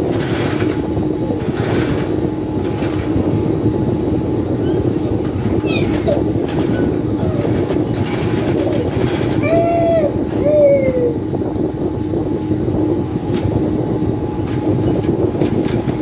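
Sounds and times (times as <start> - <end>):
sewing machine motor hum: 0.0 - 3.4, 4.8 - 13.6.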